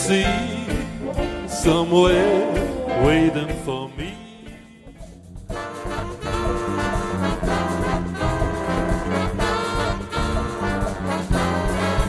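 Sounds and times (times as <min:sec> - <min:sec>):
big band playing: 0:00.0 - 0:12.0
brass section: 0:05.5 - 0:12.0.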